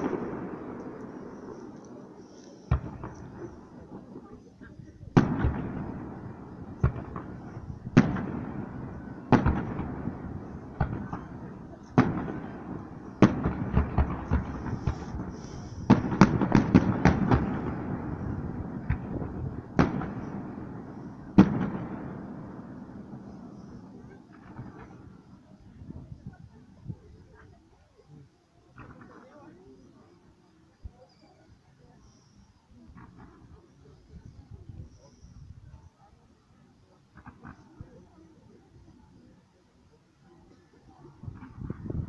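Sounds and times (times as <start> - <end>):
distant firework bangs echoing: 0.0 - 25.5.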